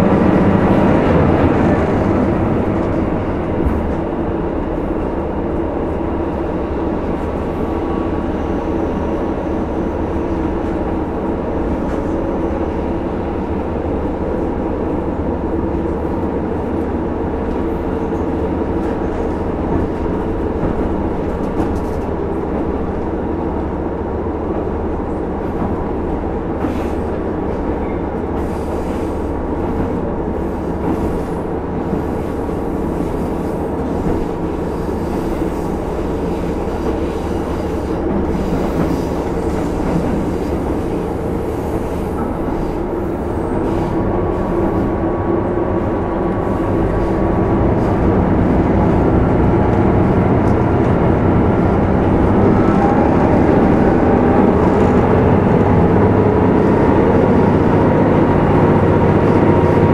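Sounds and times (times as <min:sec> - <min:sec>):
wheels rumbling on rails: 0:00.0 - 0:59.9
diesel engine drone: 0:40.8 - 0:59.9.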